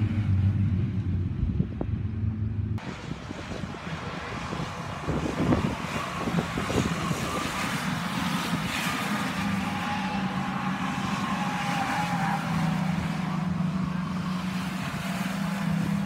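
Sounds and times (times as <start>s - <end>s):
stock car engines: 0.0s - 16.0s
wind noise on microphone: 0.5s - 9.5s.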